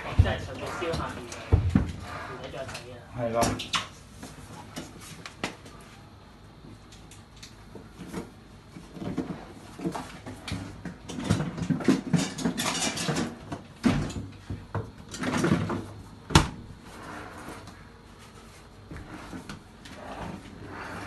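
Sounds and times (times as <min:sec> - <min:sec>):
knocks and clatter on refrigerator: 0:00.0 - 0:02.0, 0:08.9 - 0:16.7.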